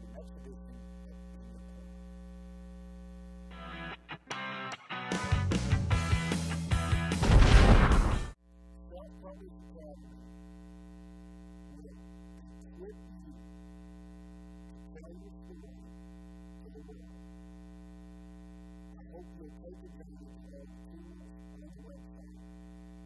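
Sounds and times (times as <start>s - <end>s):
faint man's voice: 0.0s - 2.0s, 18.9s - 22.6s
electrical mains hum: 0.0s - 4.7s, 6.2s - 23.0s.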